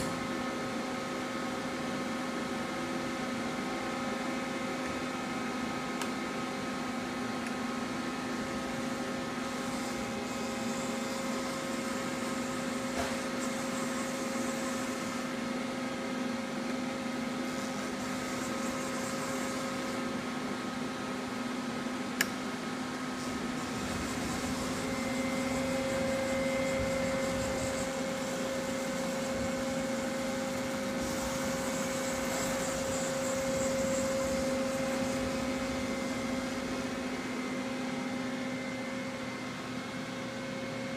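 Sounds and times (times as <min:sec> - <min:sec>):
high machine whine: 0:00.0 - 0:21.5, 0:22.7 - 0:40.9
lathe machine hum: 0:22.9 - 0:40.9.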